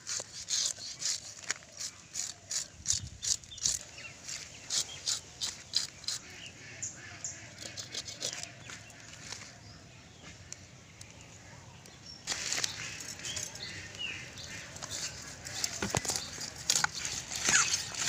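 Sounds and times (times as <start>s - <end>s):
fish scaler scraping scales: 0.0s - 6.4s, 7.5s - 8.6s, 12.3s - 18.0s.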